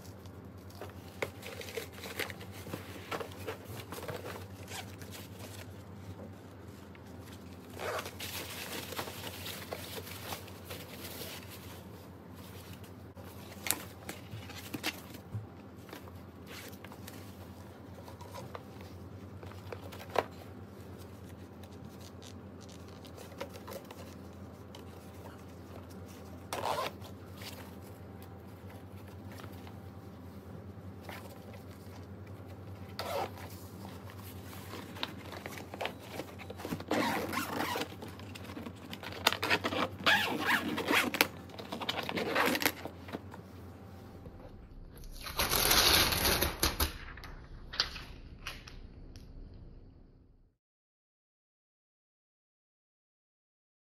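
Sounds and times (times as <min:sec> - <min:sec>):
steady low hum: 0:00.0 - 0:50.5
suitcase zipper rasping: 0:26.5 - 0:27.0, 0:33.0 - 0:33.3, 0:36.8 - 0:37.9.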